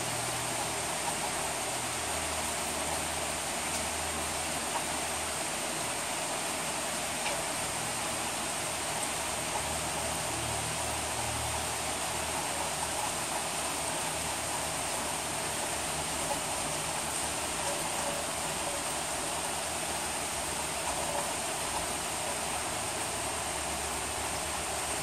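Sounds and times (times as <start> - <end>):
steady rain falling: 0.0 - 25.0.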